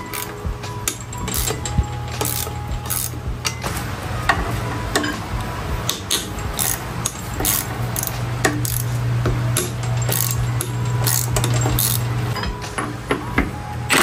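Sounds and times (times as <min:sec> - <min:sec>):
tools and metal parts clinking: 0:00.0 - 0:13.0
steady low hum: 0:00.0 - 0:13.9.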